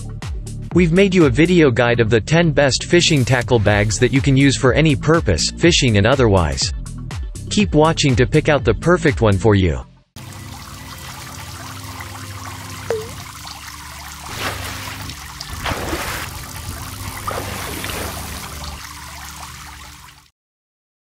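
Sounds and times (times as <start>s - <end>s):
water trickling and running: 10.2s - 20.3s
short pitched blip: 12.9s - 13.2s.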